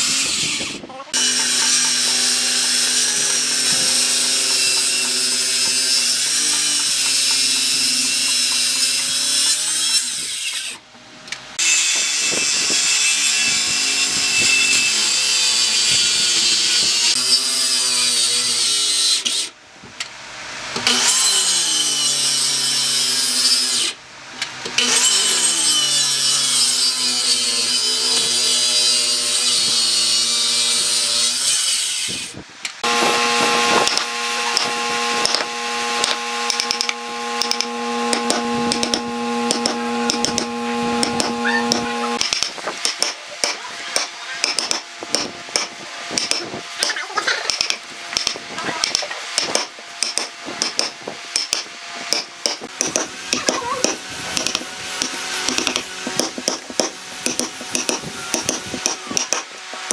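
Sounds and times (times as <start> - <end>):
circular saw cutting wood: 0.0 - 10.9, 11.5 - 19.6, 20.3 - 59.9.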